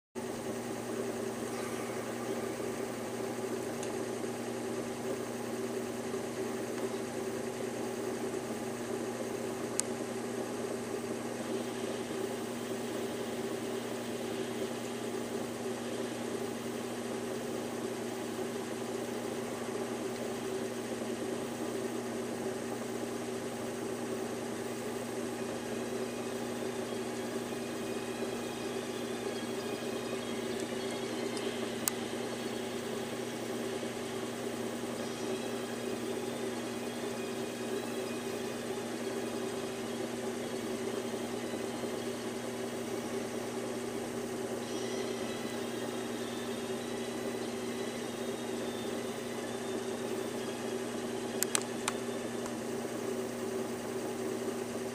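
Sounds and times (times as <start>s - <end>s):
mechanical hum and whir: 0.2s - 54.9s
faint click: 51.4s - 52.6s.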